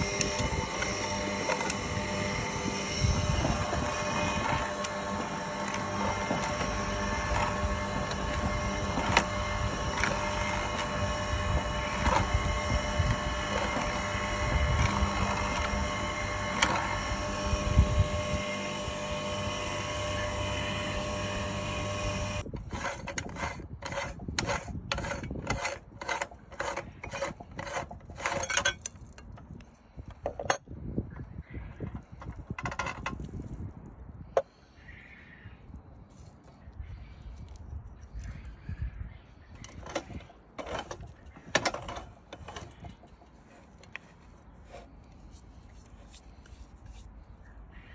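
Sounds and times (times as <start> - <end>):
meat grinder humming: 0.0 - 22.4.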